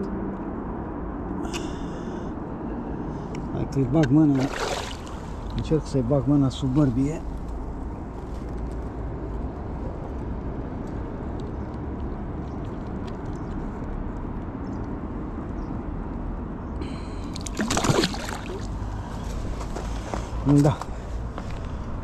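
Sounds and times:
water sloshing and gurgling: 4.0s - 5.7s, 17.2s - 20.4s
fish thrashing splash: 4.3s - 5.5s, 17.3s - 18.8s.

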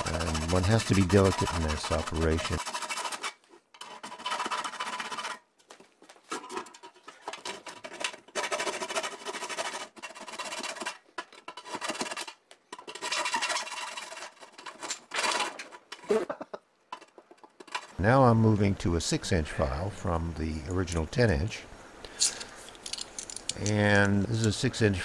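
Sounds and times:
file rasping on aluminum: 0.0s - 5.4s, 7.4s - 12.3s.

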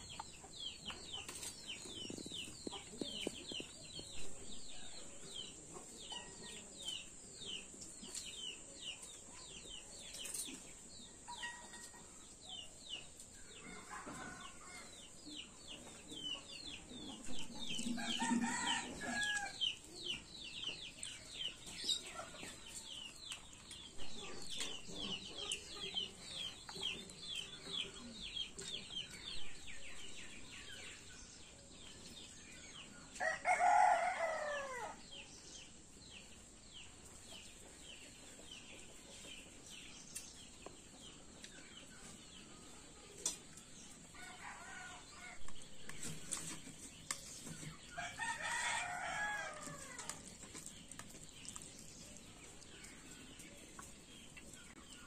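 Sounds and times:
chickens peeping: 0.0s - 33.3s, 35.0s - 55.0s
rooster crowing: 17.9s - 19.6s, 33.2s - 35.0s.

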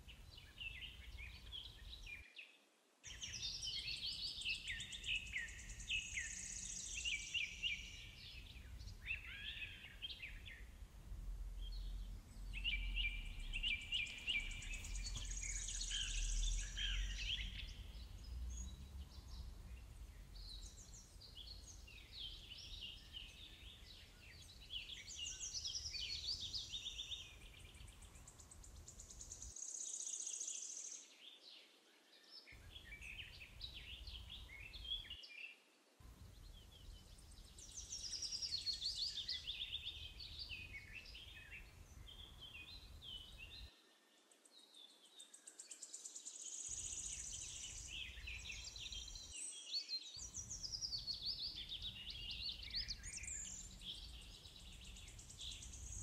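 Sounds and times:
birds chirping and singing: 3.1s - 10.7s, 11.6s - 29.6s, 36.4s - 43.7s, 46.7s - 56.0s.

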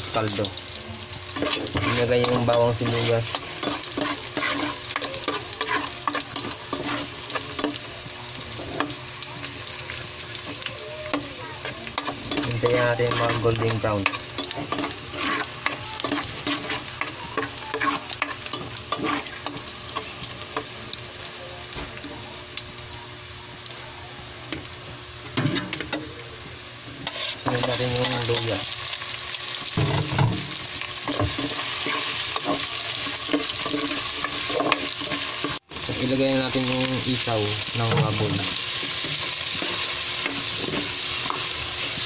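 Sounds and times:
garlic and onion sizzling in oil: 0.0s - 42.0s
utensil scraping metal pot: 1.3s - 7.9s, 10.4s - 20.7s, 27.0s - 28.6s, 29.7s - 35.9s, 36.6s - 42.0s.

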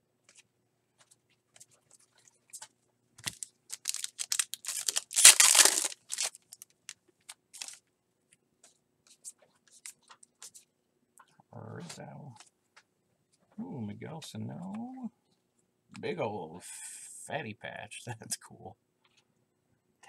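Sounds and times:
foil wrapper tearing and crinkling: 3.2s - 7.8s.

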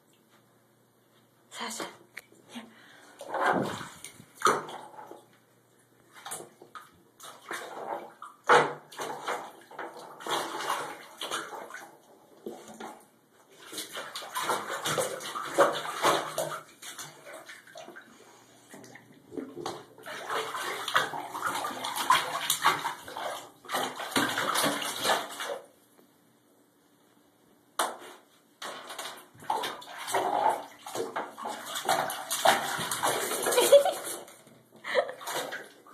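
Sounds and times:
dog splashing in water: 3.2s - 5.2s, 6.2s - 11.9s, 13.6s - 18.0s, 18.9s - 25.7s, 28.6s - 34.3s
knocks in bathtub: 3.3s - 4.8s.

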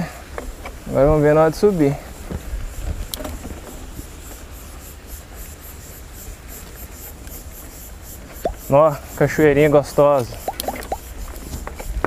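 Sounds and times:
bike tyres rumbling on dirt: 0.0s - 5.6s
wind on microphone: 2.1s - 4.2s
sharp click: 10.5s - 11.0s.

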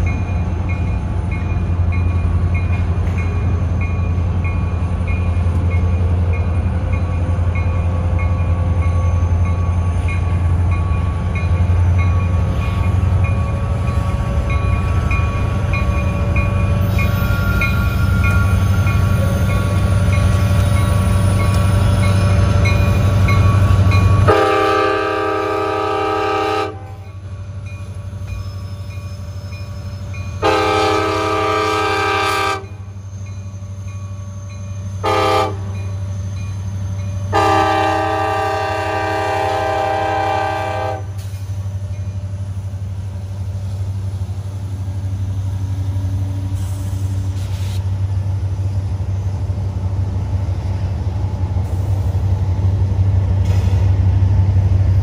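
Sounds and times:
diesel locomotives rumbling: 0.0s - 55.0s
train air horn blasts: 24.2s - 27.0s, 30.4s - 32.8s, 35.0s - 35.7s, 37.3s - 41.2s.

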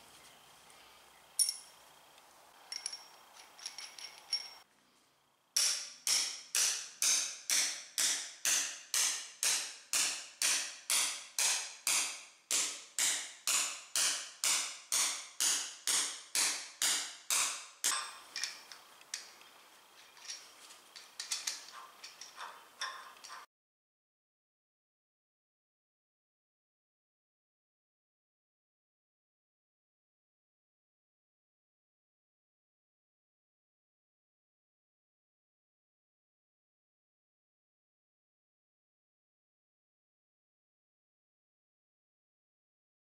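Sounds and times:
light metal clinks: 1.4s - 1.8s, 2.7s - 4.6s
hammer striking metal anchor: 5.6s - 19.3s, 21.0s - 23.5s.

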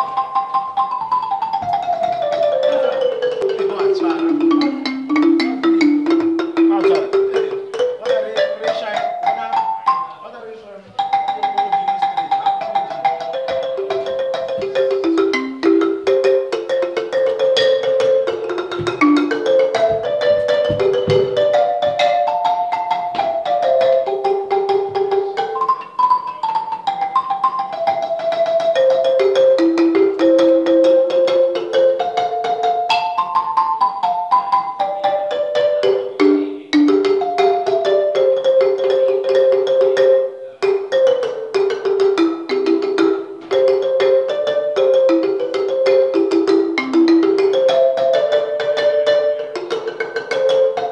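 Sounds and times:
marimba melody: 0.0s - 50.9s
deep thuds: 18.6s - 22.2s.

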